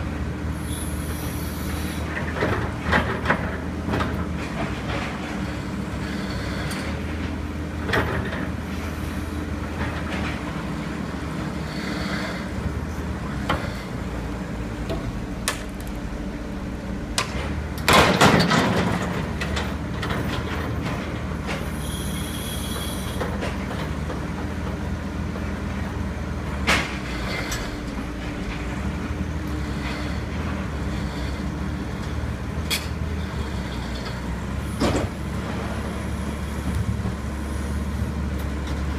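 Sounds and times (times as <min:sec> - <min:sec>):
diesel engine running: 0:00.0 - 0:38.9
excavator bucket breaking paving: 0:17.2 - 0:21.2
metal clanks and scrapes: 0:26.6 - 0:28.8.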